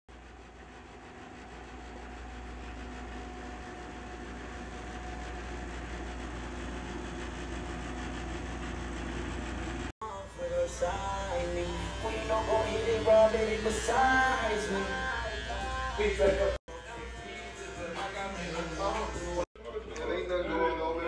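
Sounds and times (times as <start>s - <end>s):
music: 10.0s - 21.0s.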